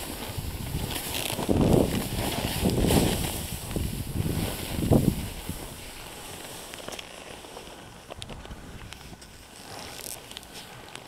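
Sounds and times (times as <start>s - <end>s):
wind on microphone: 0.0s - 6.4s
skis hissing through snow: 0.0s - 11.0s.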